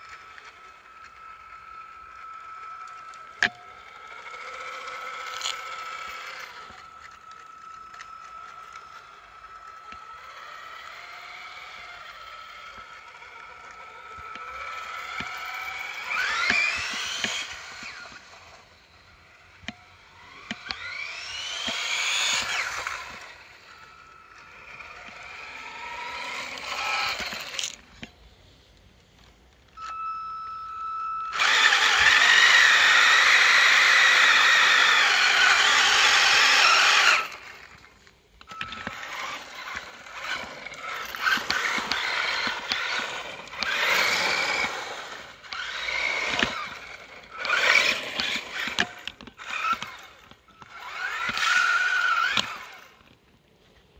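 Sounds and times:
electric motor and gears whining: 0.0 - 53.9
brief steady tone: 6.4 - 10.3, 29.7 - 32.3, 38.4 - 39.1.

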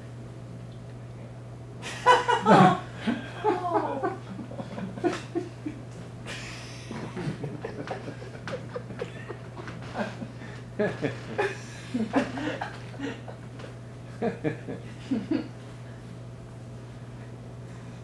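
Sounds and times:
audience laughing: 2.0 - 5.4.

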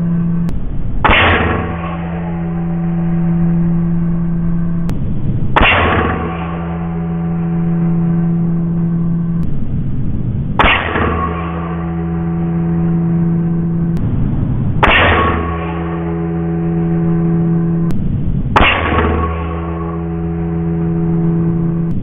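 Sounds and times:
steady low hum: 0.0 - 22.0
air rifle shots: 1.0 - 2.7, 5.5 - 7.2, 10.6 - 12.4, 13.4 - 18.0, 18.6 - 20.2.

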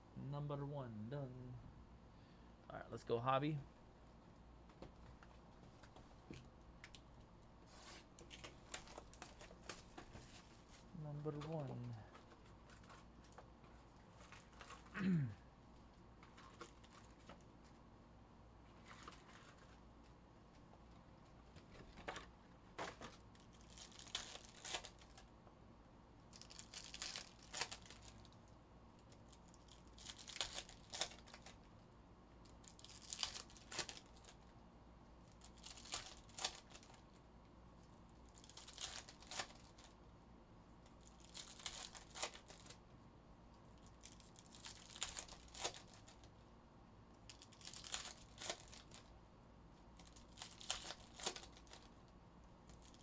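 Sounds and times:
foil wrappers tearing and crinkling: 22.8 - 25.3, 26.4 - 28.4, 29.2 - 31.6, 32.6 - 34.4, 35.3 - 37.0, 38.3 - 39.9, 41.0 - 42.8, 44.0 - 46.3, 47.3 - 49.1, 50.0 - 51.9, 52.7 - 53.0.

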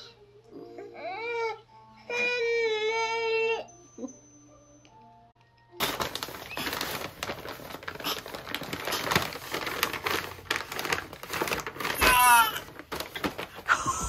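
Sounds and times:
wrapping paper crinkling: 5.8 - 14.0.

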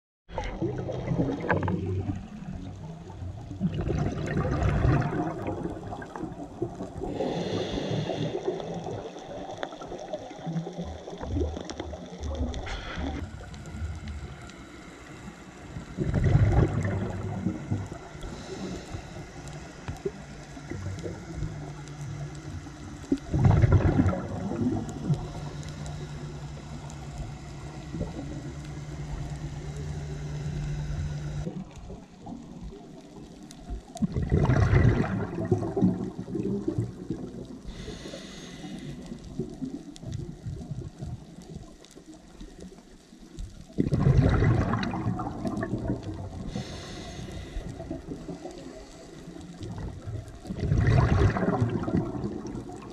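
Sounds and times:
bubbles rushing underwater: 0.3 - 14.5, 15.7 - 30.3, 31.3 - 38.1, 38.9 - 42.8, 43.5 - 52.9
steady low hum: 12.6 - 32.2.

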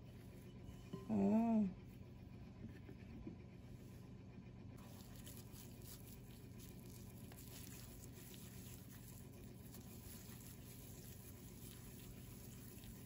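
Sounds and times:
squishing and patting ground beef: 4.8 - 13.0.

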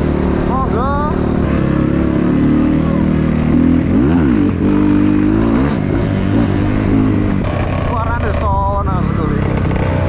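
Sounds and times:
motorcycle engine revving: 0.0 - 10.0.

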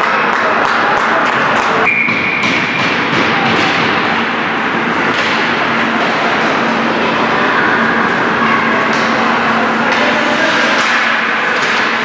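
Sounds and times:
hockey sticks clacking: 0.0 - 6.9, 8.8 - 12.0
arena crowd din: 0.0 - 12.0
high whistle tone: 1.8 - 2.5.

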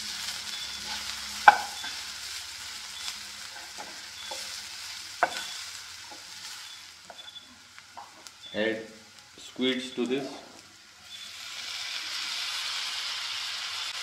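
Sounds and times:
onions sizzling in oil: 0.0 - 14.0
wooden spatula scraping a pan: 0.8 - 2.0, 3.5 - 4.6, 5.2 - 7.4.

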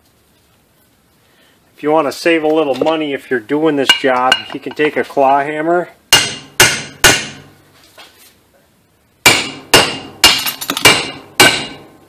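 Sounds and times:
hammer striking metal: 3.8 - 4.9, 6.1 - 7.6, 9.2 - 12.0.

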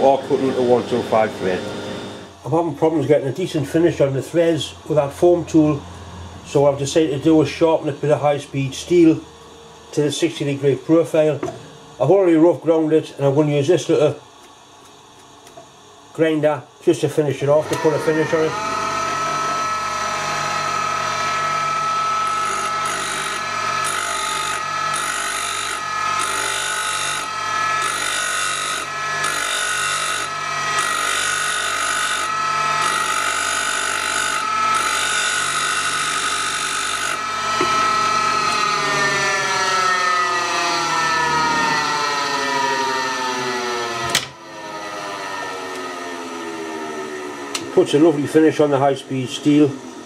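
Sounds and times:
bench grinder running: 0.0 - 12.2, 17.3 - 48.5.

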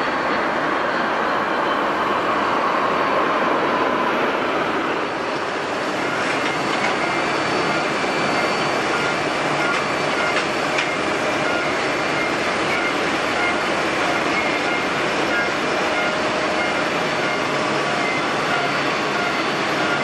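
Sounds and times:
jet engines roaring: 0.0 - 20.0.

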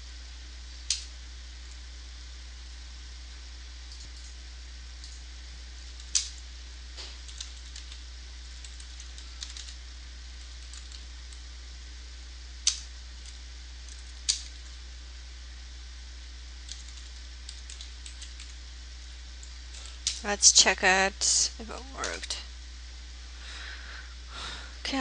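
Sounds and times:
faint electrical hum: 0.0 - 25.0
keyboard typing: 7.2 - 8.0, 8.6 - 9.8, 16.7 - 18.6.

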